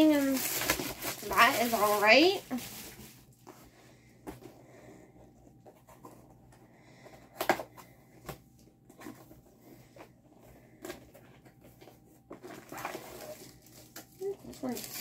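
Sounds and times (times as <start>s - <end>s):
packaging rustling: 0.0s - 3.7s, 7.2s - 15.0s.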